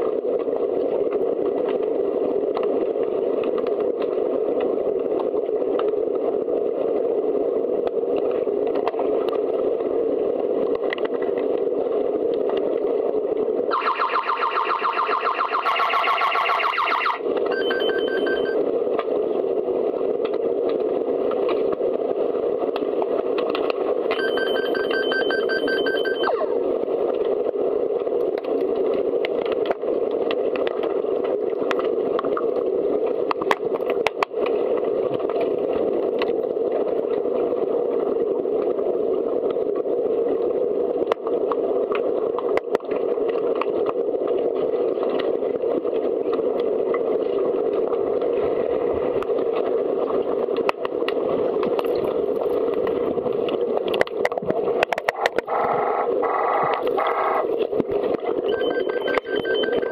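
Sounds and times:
pulsing electronic beeps: 0:13.7 - 0:18.6, 0:24.2 - 0:26.5, 0:58.4 - 0:59.9.

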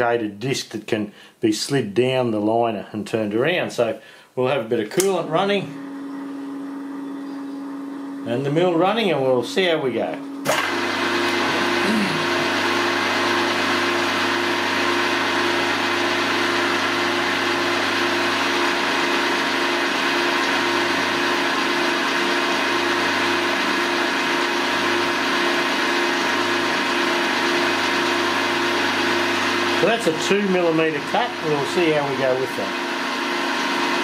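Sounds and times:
milling machine spindle running: 0:05.5 - 0:34.0.

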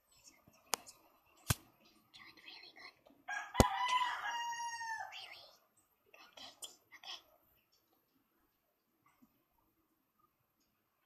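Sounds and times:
rooster crowing: 0:03.3 - 0:05.2.

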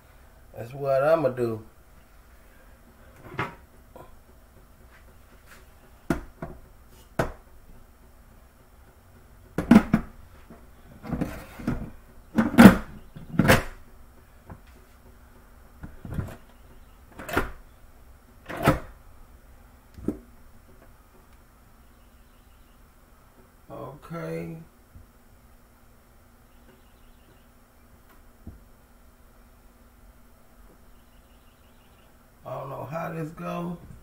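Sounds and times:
kitchen items knocking and clunking: 0:09.6 - 0:10.2.

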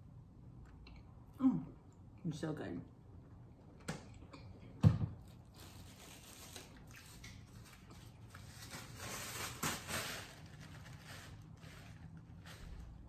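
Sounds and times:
paper napkin rustling: 0:05.4 - 0:13.0.

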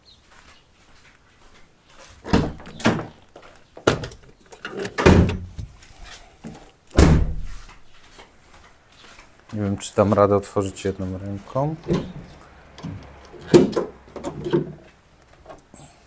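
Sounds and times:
car door slamming: 0:07.0 - 0:07.5, 0:11.8 - 0:14.6.

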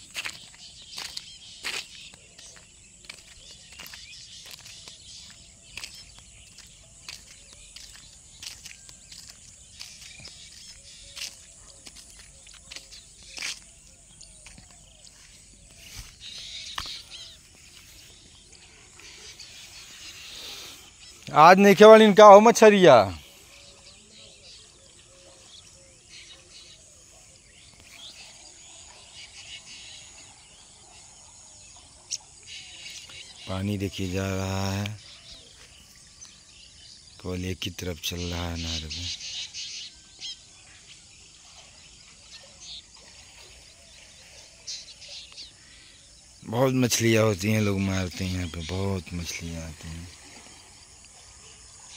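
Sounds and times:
grass and plants rustling: 0:00.0 - 0:21.6
footsteps through vegetation: 0:00.0 - 0:22.1
bird chirps: 0:00.0 - 0:51.9
insects hissing: 0:15.4 - 0:21.4, 0:47.7 - 0:51.9.

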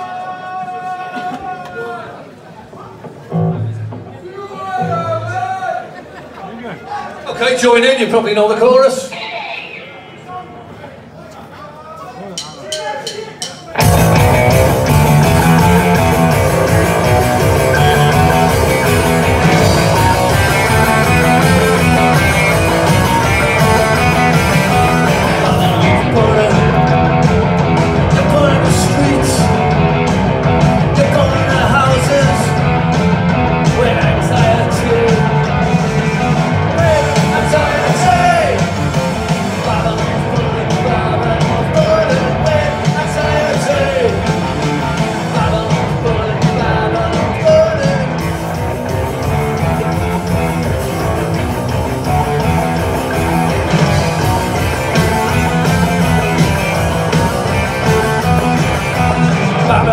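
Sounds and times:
live punk rock band: 0:13.0 - 0:59.9
person singing lead vocal: 0:24.5 - 0:27.0, 0:28.0 - 0:29.6, 0:30.8 - 0:32.7, 0:33.6 - 0:38.8, 0:39.4 - 0:48.2, 0:58.9 - 0:59.9.

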